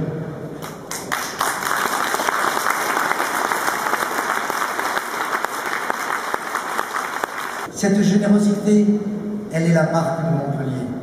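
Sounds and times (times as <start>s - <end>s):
large audience applauding: 0.6s - 7.7s.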